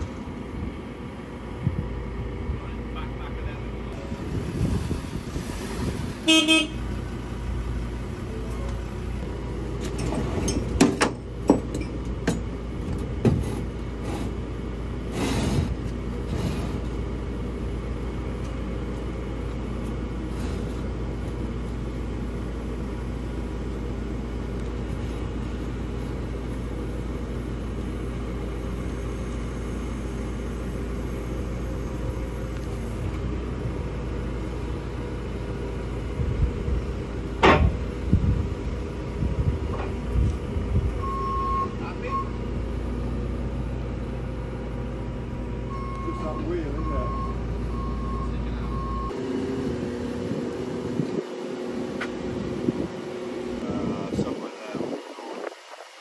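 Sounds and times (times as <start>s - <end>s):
vehicle engine idling: 0.0s - 54.4s
metallic knocks and clanks: 9.8s - 13.7s, 37.4s - 37.8s.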